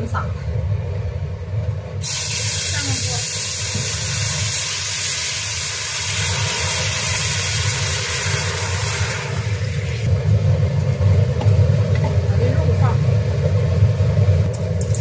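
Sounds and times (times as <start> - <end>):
steady low rumble: 0.0 - 4.6, 9.2 - 15.0
water sizzling in hot wok: 2.0 - 15.0.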